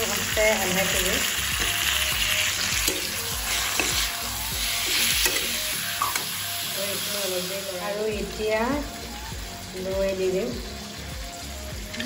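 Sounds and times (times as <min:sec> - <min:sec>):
chicken sizzling in oil: 0:00.0 - 0:12.0.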